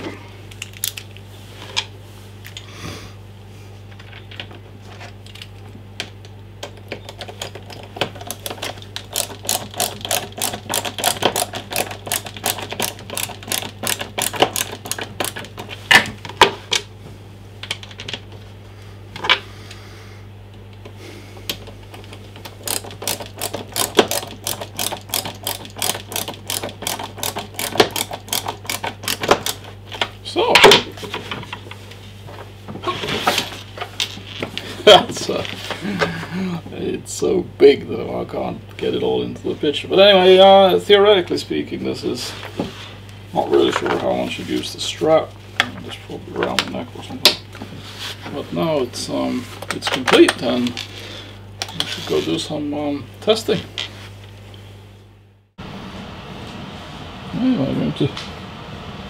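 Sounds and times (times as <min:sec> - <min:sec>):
screwdriver clicking: 0:07.2 - 0:15.5, 0:22.5 - 0:29.7.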